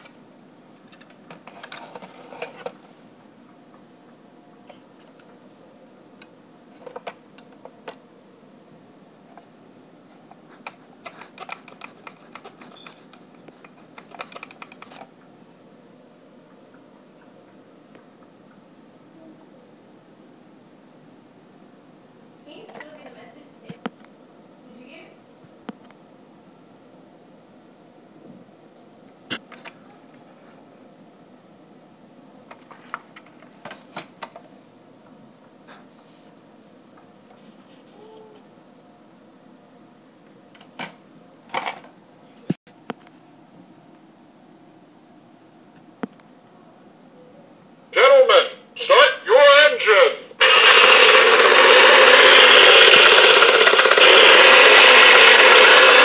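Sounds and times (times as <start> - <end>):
plastic toy parts clicking: 50.4 - 56.0.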